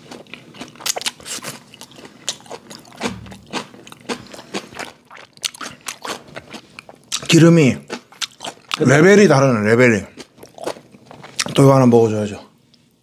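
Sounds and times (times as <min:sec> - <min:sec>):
close chewing with wet mouth clicks: 0:00.0 - 0:07.3, 0:07.9 - 0:08.8.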